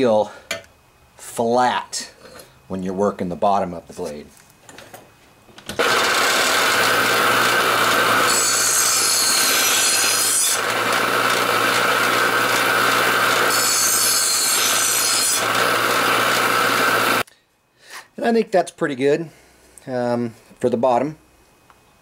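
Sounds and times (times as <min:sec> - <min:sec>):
bench grinder motor hum: 0:05.8 - 0:17.2
harsh grinding of steel blade: 0:05.8 - 0:17.2.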